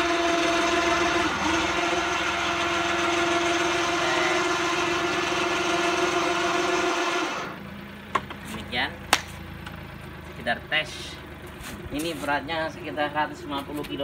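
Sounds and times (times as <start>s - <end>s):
electric hoist motor whining: 0.0s - 7.8s.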